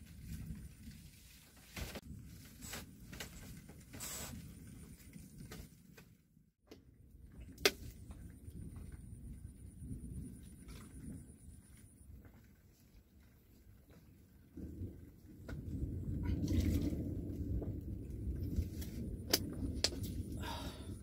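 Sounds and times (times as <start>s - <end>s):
wind on microphone: 7.6s - 12.4s, 14.5s - 21.0s.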